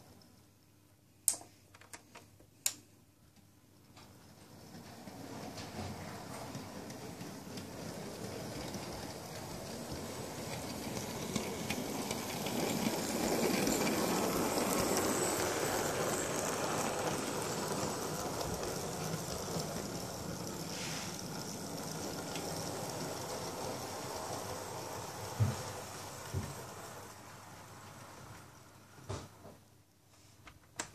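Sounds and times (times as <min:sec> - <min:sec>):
model train running on track: 0:04.6 - 0:28.8.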